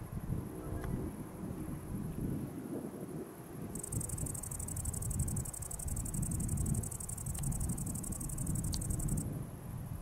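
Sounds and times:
insect stridulating: 3.7s - 9.2s.

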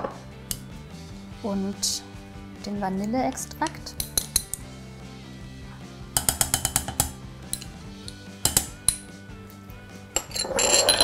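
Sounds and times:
background music: 0.0s - 11.0s
teaspoon clinking on glass bowl: 10.2s - 11.0s.

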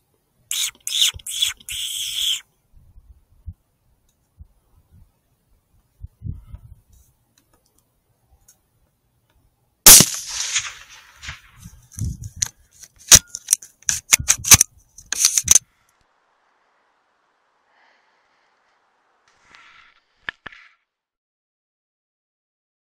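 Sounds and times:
rifle shot with echo: 9.9s - 11.6s.

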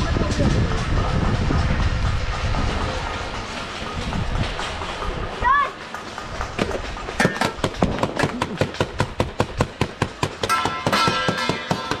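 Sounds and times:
ringing metallic tone: 10.4s - 12.0s.

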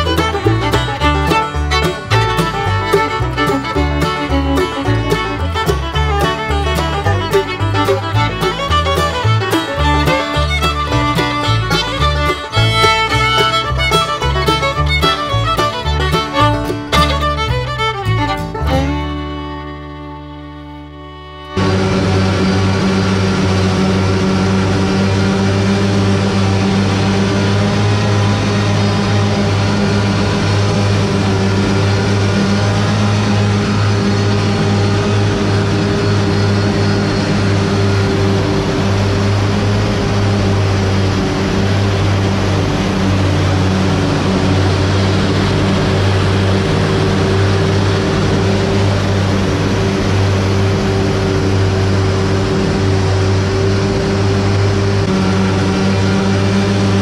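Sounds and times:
machine running loudly: 21.6s - 57.0s.

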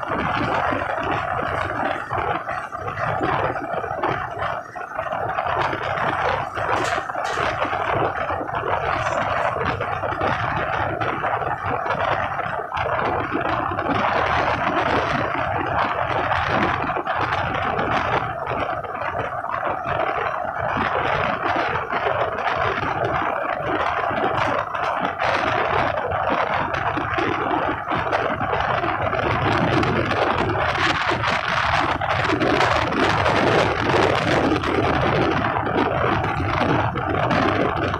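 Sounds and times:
train wheels rushing on rail: 0.0s - 15.1s
irregular rattling: 5.6s - 10.3s.

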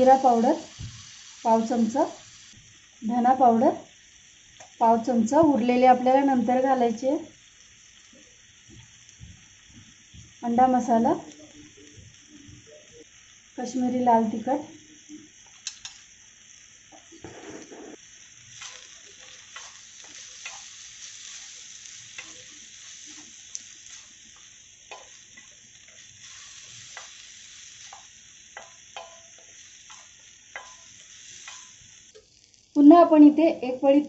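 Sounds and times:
food sizzling on a hot griddle: 0.0s - 34.0s
spatula clicking and scraping: 18.5s - 22.5s.

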